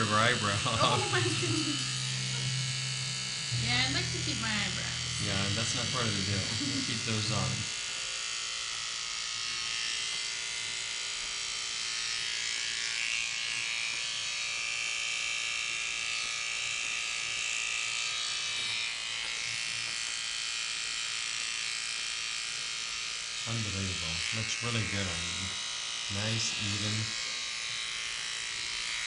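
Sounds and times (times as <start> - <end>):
electric hair clippers buzzing: 0.0 - 29.0.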